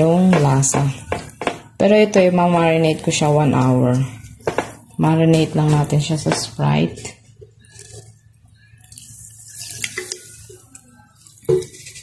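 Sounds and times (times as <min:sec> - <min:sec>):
liquid splashing in bowl: 0:07.0 - 0:12.0
soda fizzing: 0:07.6 - 0:12.0.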